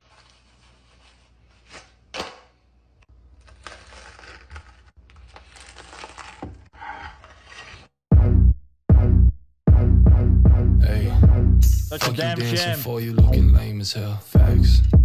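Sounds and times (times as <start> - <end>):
knife crunching through crisp food: 3.2 - 7.9.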